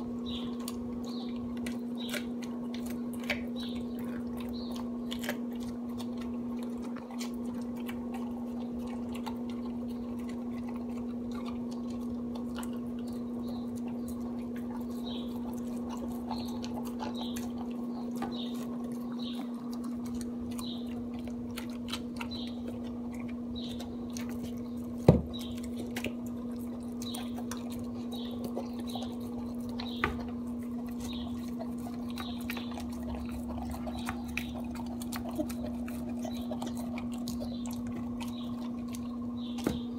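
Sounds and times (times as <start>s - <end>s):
dog chewing and licking: 0.0s - 39.9s
steady low hum: 0.0s - 39.9s.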